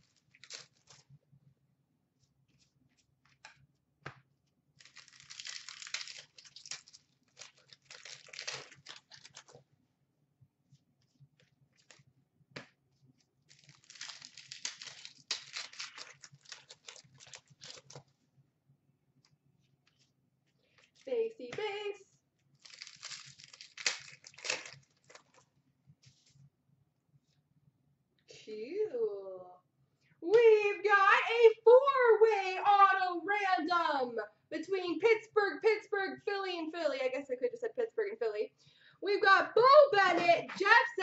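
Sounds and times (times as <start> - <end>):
cards rustling in a stack: 0.0 - 1.2, 2.2 - 9.7, 10.7 - 18.2, 19.2 - 21.7, 22.6 - 26.4.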